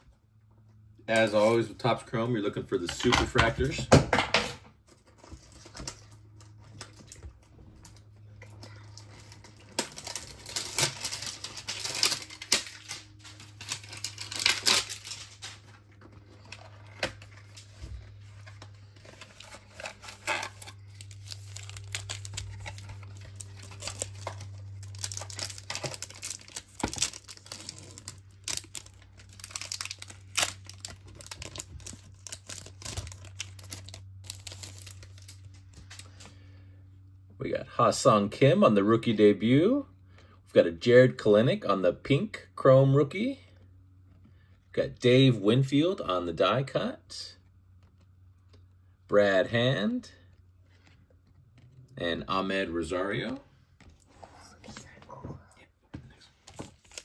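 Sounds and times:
foil packs tearing and crinkling: 8.8 - 36.2, 56.5 - 57.0.

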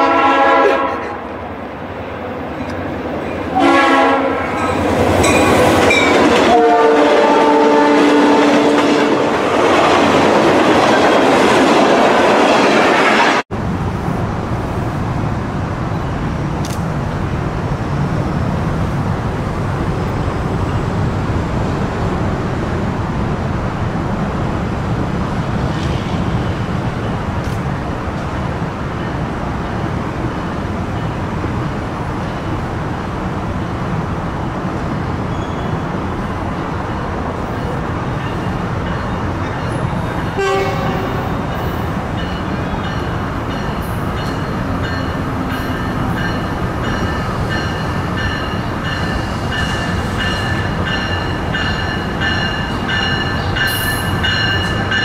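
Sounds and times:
train horn blasts: 0.0 - 1.2, 3.5 - 4.6, 6.3 - 9.3, 40.3 - 41.6
train rushing past: 0.0 - 55.0.

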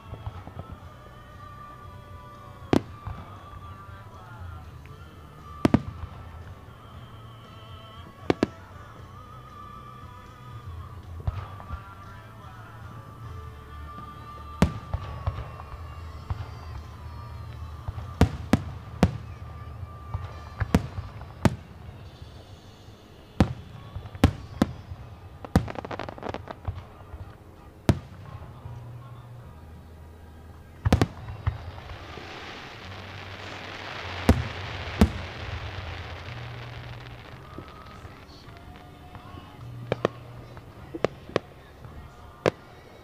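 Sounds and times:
background music: 0.0 - 43.0
fireworks bursting with bangs: 0.0 - 43.0
broad hiss: 30.9 - 41.5.

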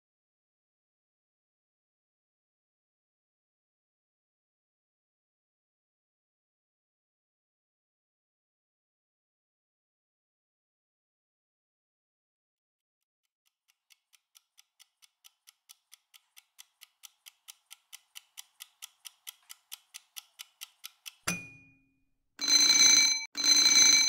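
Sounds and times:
timer knock: 16.0 - 21.8
alarm bell ringing: 22.4 - 24.0.

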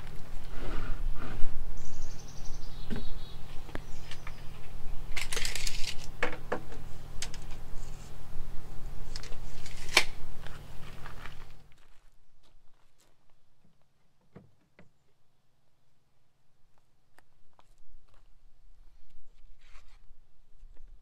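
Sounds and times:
tape measure pulled out: 9.1 - 10.2.

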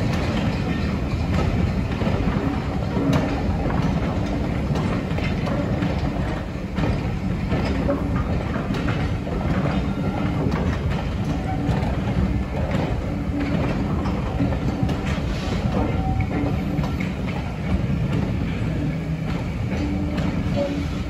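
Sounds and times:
train wheels rumbling on rails: 0.0 - 21.0
wheels clicking over rail joints: 0.0 - 21.0.

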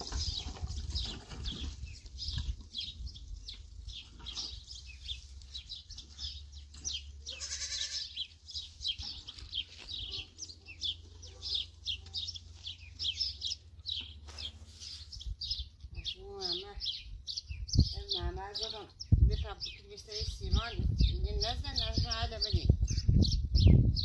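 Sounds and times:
small birds chirping: 0.0 - 24.0
animal bleating: 7.2 - 8.3.

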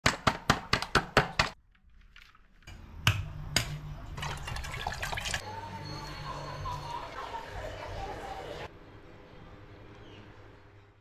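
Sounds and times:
water pouring into metal pot: 4.2 - 5.4.

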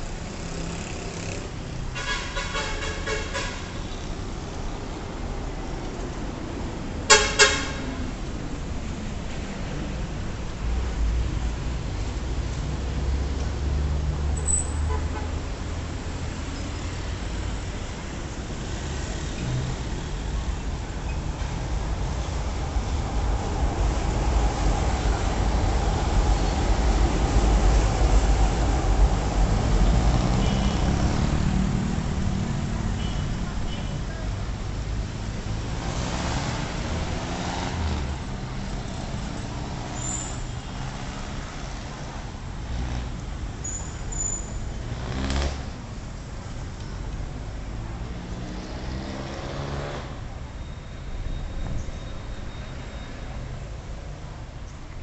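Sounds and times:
motorcycles passing: 0.0 - 1.8, 21.6 - 43.4, 44.8 - 46.0, 47.7 - 50.3
passing vehicles rumbling: 0.0 - 55.0
road noise: 0.0 - 55.0.

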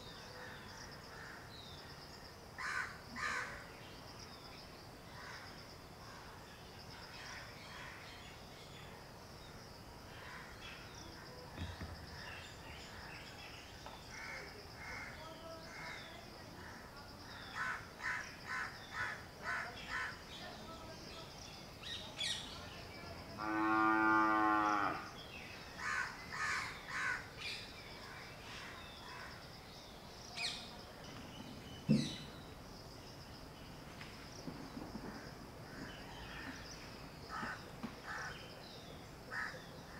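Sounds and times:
high insect drone: 0.0 - 39.9
crows cawing: 2.6 - 3.6, 25.8 - 27.3, 37.3 - 38.4, 39.3 - 39.6
cow mooing: 23.4 - 25.1.

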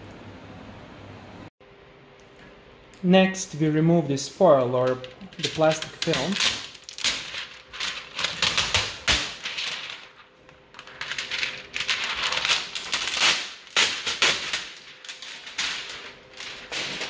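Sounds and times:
plastic film crinkling and crackling: 4.7 - 17.0.

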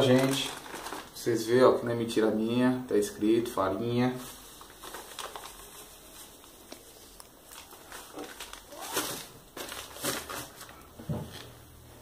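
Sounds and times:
plastic bag crinkling: 0.0 - 1.4, 4.1 - 11.5.

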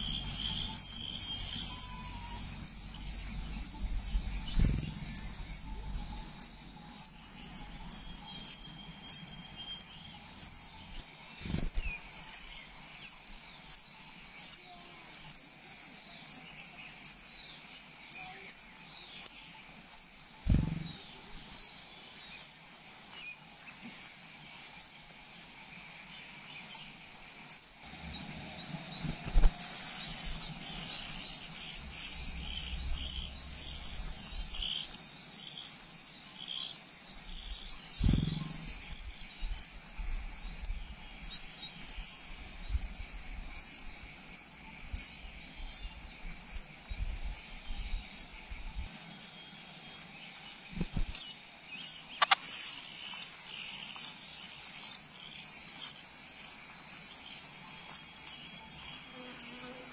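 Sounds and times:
high-pitched begging chatter: 0.0 - 10.7, 29.6 - 45.2
nestling birds begging cheeps: 0.0 - 27.8, 28.8 - 59.9.

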